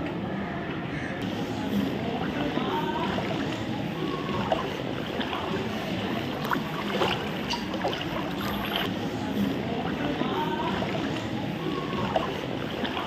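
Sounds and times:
water sloshing from wading: 0:03.1 - 0:09.0
sharp water splashes: 0:05.2 - 0:08.9.

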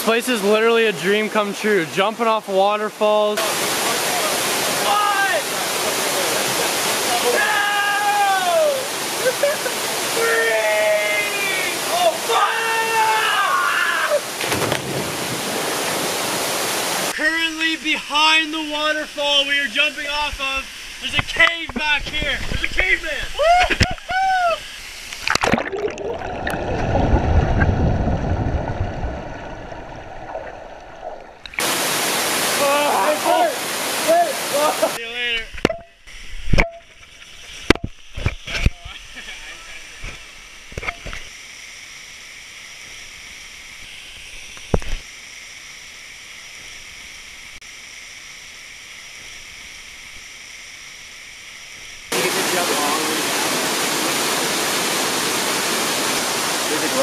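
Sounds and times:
muffled hiss of water: 0:00.0 - 0:57.0
water splashing: 0:14.2 - 0:17.2, 0:18.3 - 0:35.0
muffled underwater rush of water: 0:24.6 - 0:35.0.

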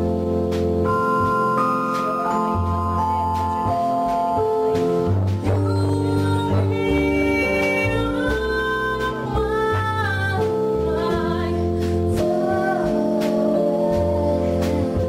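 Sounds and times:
drums: 0:00.0 - 0:15.0
electric keyboard: 0:00.0 - 0:15.0
saxophone: 0:00.0 - 0:15.0
upright bass: 0:00.0 - 0:15.0
woman singing: 0:05.4 - 0:15.0.

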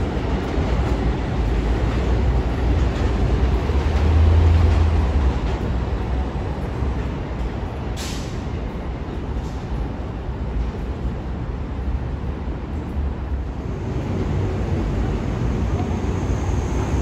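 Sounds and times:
subway train rumbling: 0:00.0 - 0:17.0
air hiss: 0:08.0 - 0:08.4.

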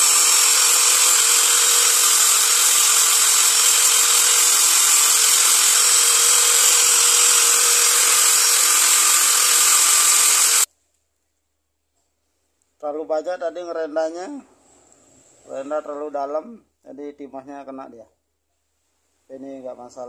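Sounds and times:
angle grinder sanding wood: 0:00.0 - 0:10.7.

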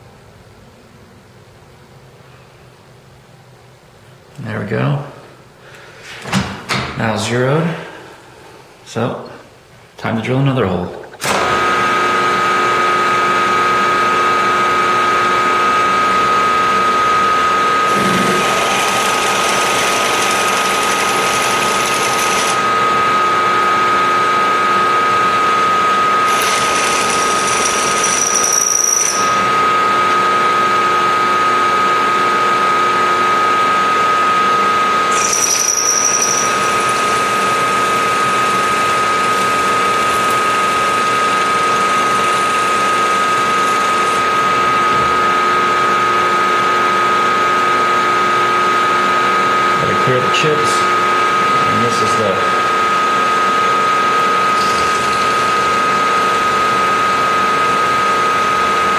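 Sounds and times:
milling machine spindle whine: 0:11.3 - 0:58.9
drill cutting metal hiss: 0:17.9 - 0:22.6, 0:26.2 - 0:29.4, 0:35.1 - 0:44.3, 0:54.5 - 0:56.0
high squeal: 0:35.1 - 0:36.9.

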